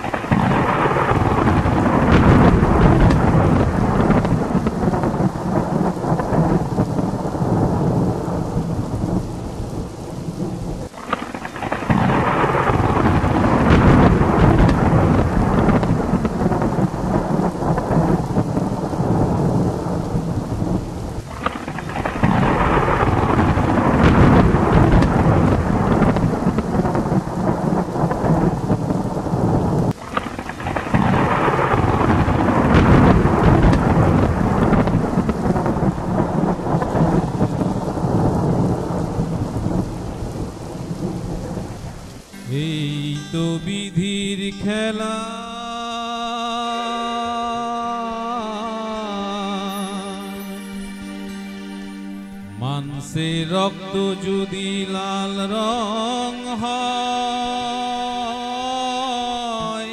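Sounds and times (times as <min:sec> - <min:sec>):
rolling thunder: 0:00.0 - 0:42.3
heavy rain: 0:00.0 - 0:59.9.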